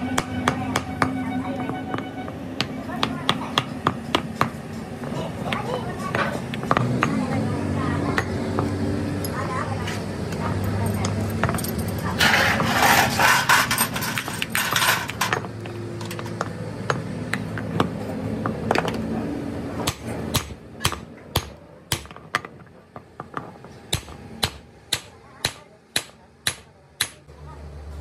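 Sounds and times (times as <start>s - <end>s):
hammer striking metal: 0.0s - 4.6s, 19.8s - 22.2s, 23.9s - 27.3s
metal parts clattering: 11.4s - 16.4s.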